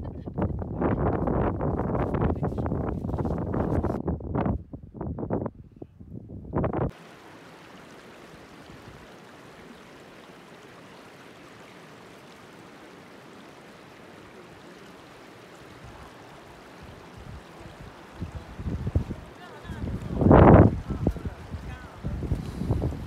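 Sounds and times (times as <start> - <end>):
stream flowing over pebbles: 6.9 - 23.0.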